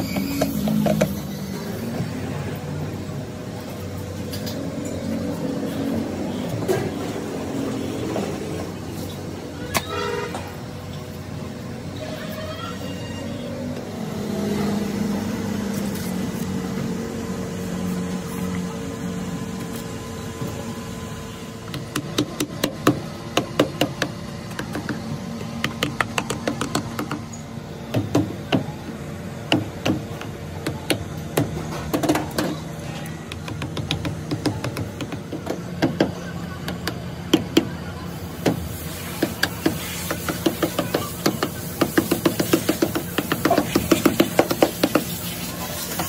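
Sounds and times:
traffic rumble: 0.0s - 46.0s.

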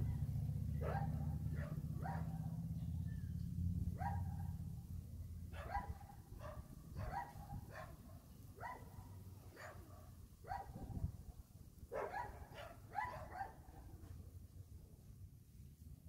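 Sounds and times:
dogs barking: 0.0s - 2.7s, 3.9s - 4.6s, 5.5s - 11.0s, 11.9s - 13.8s.

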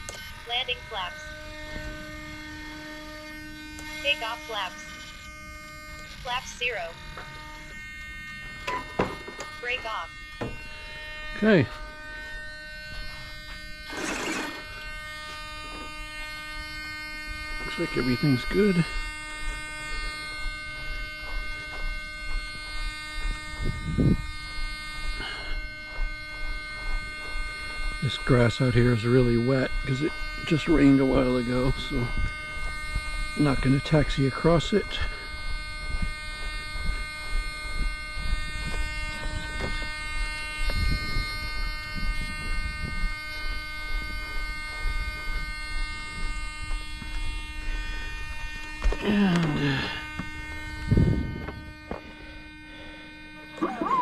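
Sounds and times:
electric fan buzzing whine: 0.0s - 54.0s
low rumble on microphone: 14.6s - 34.2s, 34.8s - 54.0s.

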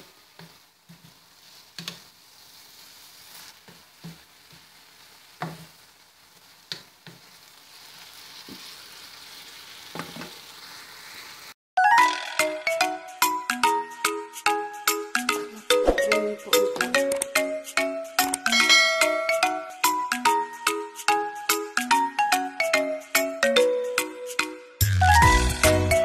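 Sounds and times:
faint sizzle: 0.0s - 11.6s
chiming music jingle: 11.8s - 26.0s.

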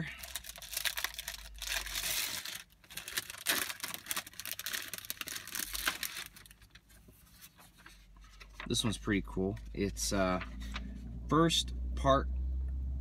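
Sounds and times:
plastic wrapper tearing and rustling: 0.0s - 7.7s.

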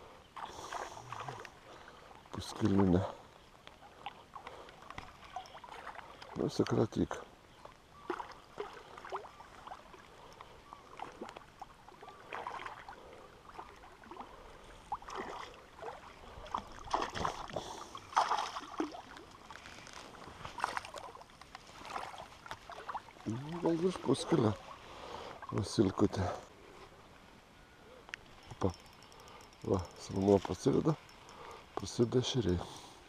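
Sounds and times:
fish thrashing water splashes: 14.9s - 19.3s.

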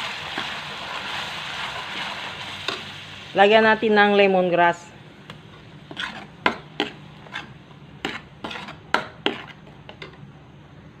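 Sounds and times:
metal ladle scraping a wok: 5.9s - 9.8s.

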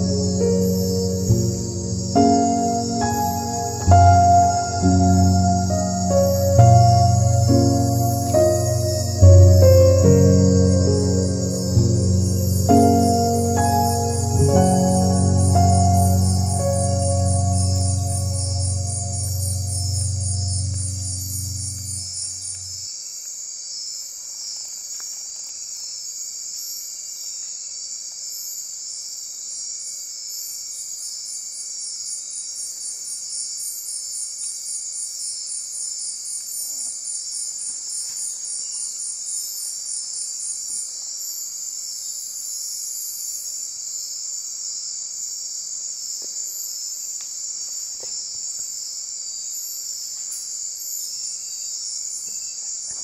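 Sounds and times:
pulsed insect call: 0.0s - 24.9s
insects buzzing: 0.0s - 53.0s.

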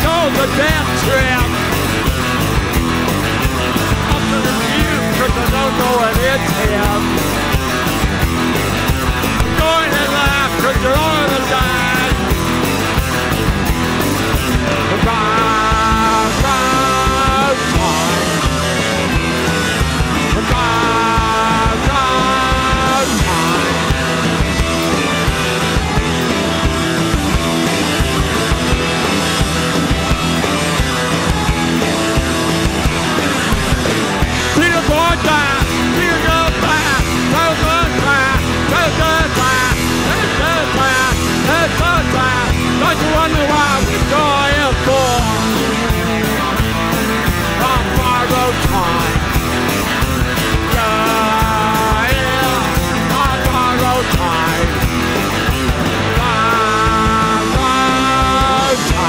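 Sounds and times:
live rock band playing: 0.0s - 59.0s
person singing: 4.1s - 7.2s, 9.4s - 12.4s, 14.8s - 19.2s, 20.2s - 24.2s, 34.4s - 46.7s, 47.4s - 49.4s, 50.5s - 54.9s, 56.1s - 59.0s.

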